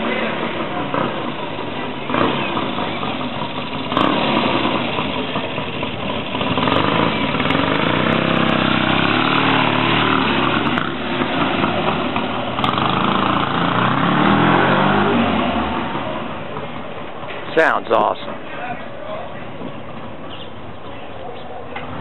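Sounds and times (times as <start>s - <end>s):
motorcycle engine passing by: 0.0s - 16.6s.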